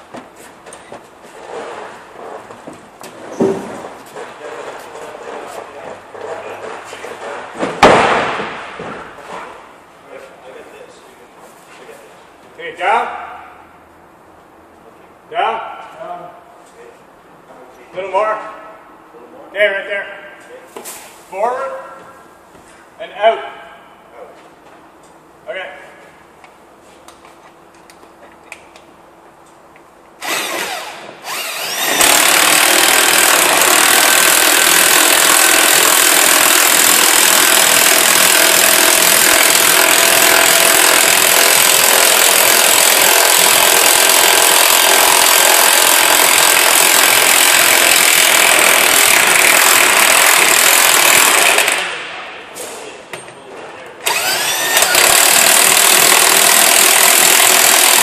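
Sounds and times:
power tool motor whirring: 30.2s - 51.8s, 54.0s - 58.0s.

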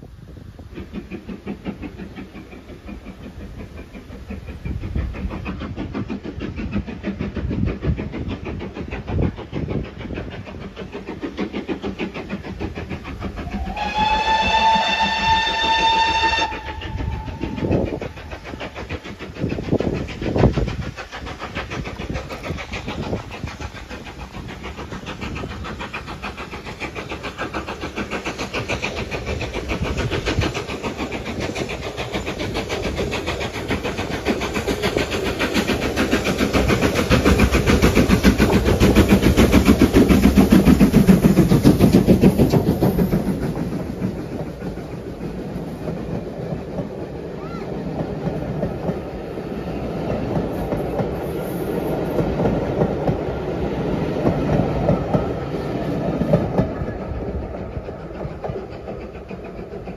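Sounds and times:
coaches rolling on rails: 0.0s - 59.9s
locomotive exhaust beats: 0.3s - 59.9s
steam locomotive whistle: 13.4s - 18.0s.

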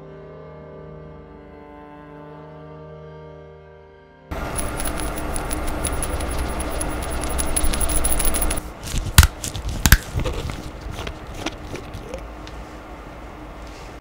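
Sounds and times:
steady ticking: 4.3s - 8.6s
faint clicks and scrapes: 4.3s - 12.6s.

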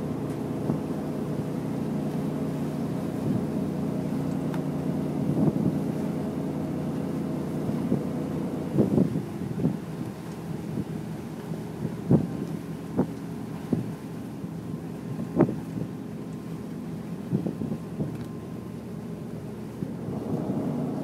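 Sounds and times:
wind noise on microphone: 5.2s - 6.0s, 7.6s - 11.1s, 11.7s - 14.1s, 15.0s - 16.0s, 17.2s - 18.3s, 19.7s - 21.0s
ferry engines humming: 16.0s - 21.0s.

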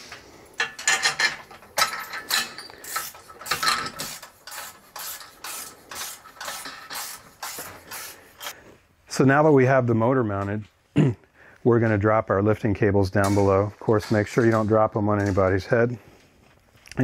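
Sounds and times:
hand tools scraping and clicking: 0.0s - 8.6s, 13.2s - 16.2s.

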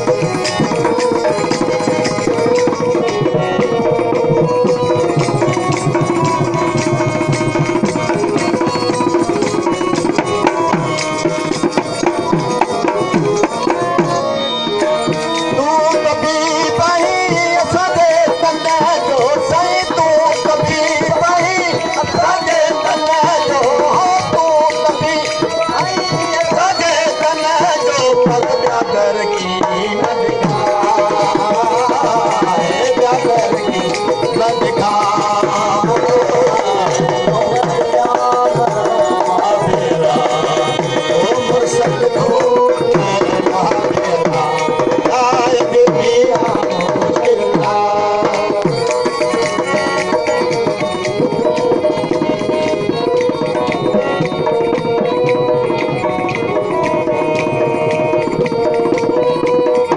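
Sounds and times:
hand drum rhythm: 0.0s - 59.9s
wavering melody: 0.0s - 59.9s.

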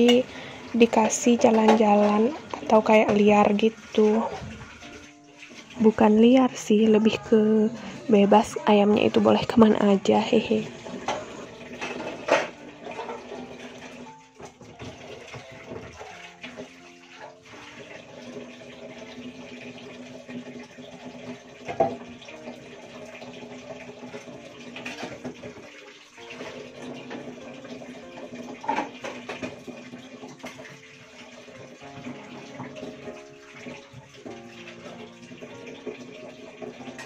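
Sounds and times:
tap water running into sink: 0.0s - 37.0s
dishes clinking: 10.9s - 13.6s, 24.8s - 25.6s, 28.6s - 29.6s.

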